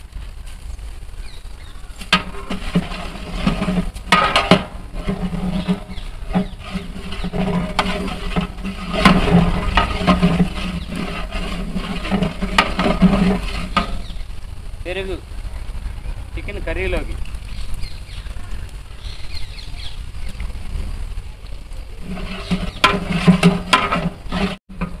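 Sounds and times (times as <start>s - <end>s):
curry sizzling in a pot: 0.4s - 25.0s
spoon scraping and knocking pot: 2.0s - 14.2s, 22.0s - 25.0s.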